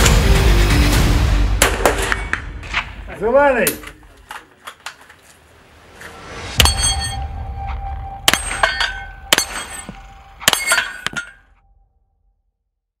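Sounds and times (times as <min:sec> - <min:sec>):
loud metallic clangs: 0:06.6 - 0:07.4, 0:08.2 - 0:11.5.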